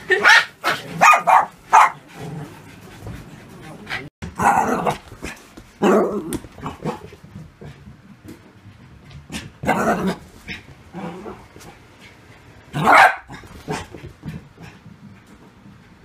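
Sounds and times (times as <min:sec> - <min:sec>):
dogs barking and growling: 0:00.0 - 0:08.1, 0:09.2 - 0:15.0.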